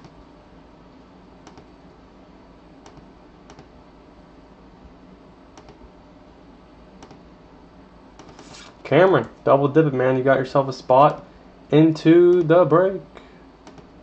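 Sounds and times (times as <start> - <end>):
faint steady hum: 0.0 - 14.0
computer mouse clicks: 1.4 - 1.7, 2.8 - 3.7, 5.6 - 5.8, 7.0 - 7.2, 8.2 - 8.8, 13.6 - 13.9.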